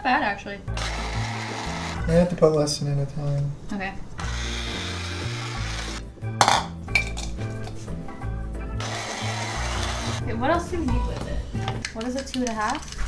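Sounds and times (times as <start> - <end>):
electric coffee grinder grinding: 0.7 - 2.2, 4.2 - 6.1, 8.8 - 10.2.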